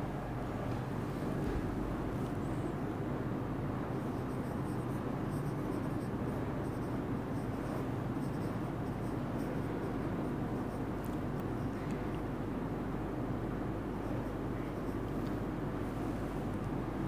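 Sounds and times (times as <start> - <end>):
low room hum: 0.0 - 17.0
marker writing on whiteboard: 4.0 - 11.8.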